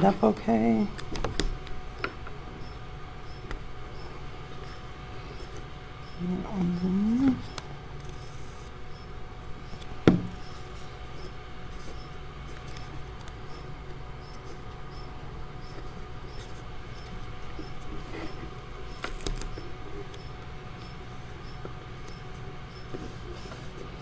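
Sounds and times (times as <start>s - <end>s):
steady low hum: 0.0s - 24.0s
paper handling clicks and taps: 19.0s - 19.6s.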